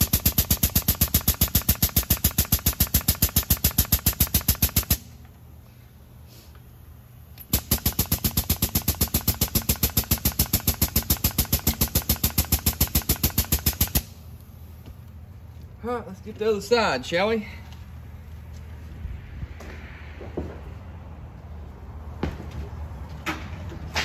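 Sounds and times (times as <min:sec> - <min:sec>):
air-powered grease gun rattling: 0:00.0 - 0:05.4, 0:06.3 - 0:14.9.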